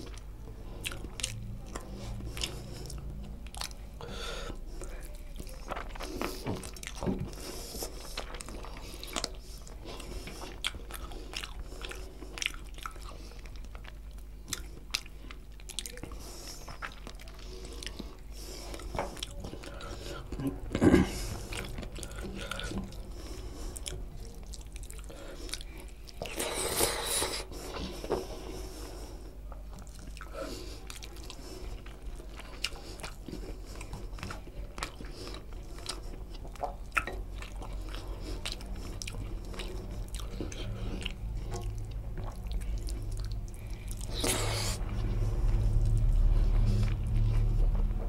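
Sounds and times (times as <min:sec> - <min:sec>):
person chewing: 0:00.0 - 0:48.0.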